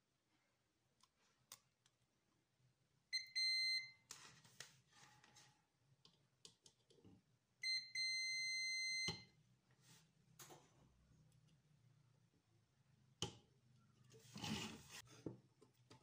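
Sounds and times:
multimeter continuity beep: 0:03.1 - 0:04.0, 0:07.6 - 0:09.3.

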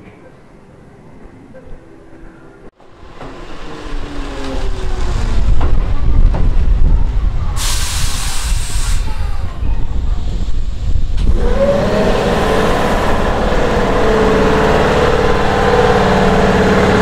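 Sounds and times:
electric train rumbling: 0:00.0 - 0:17.0
air hiss release: 0:07.6 - 0:09.5.

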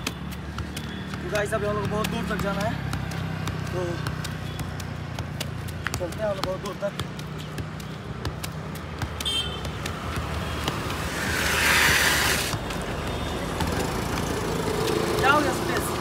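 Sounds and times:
football being kicked: 0:00.0 - 0:11.1
road traffic: 0:00.0 - 0:16.0
motor scooter passing: 0:09.9 - 0:12.8, 0:13.4 - 0:16.0.

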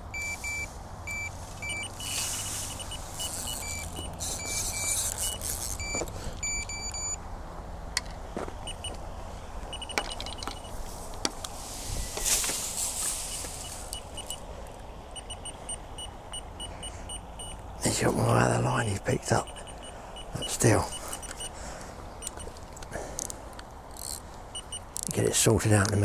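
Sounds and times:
rustling hiss: 0:00.0 - 0:07.0, 0:10.6 - 0:25.6
bite alarm beeps: 0:00.0 - 0:07.2, 0:08.7 - 0:09.0, 0:09.7 - 0:10.8, 0:13.3 - 0:14.4, 0:15.2 - 0:17.6, 0:19.2 - 0:21.6, 0:22.2 - 0:22.5, 0:24.5 - 0:24.9
fishing reel whirring and ticking: 0:03.1 - 0:05.8, 0:23.9 - 0:25.1
sharp clicks: 0:13.4 - 0:16.5.

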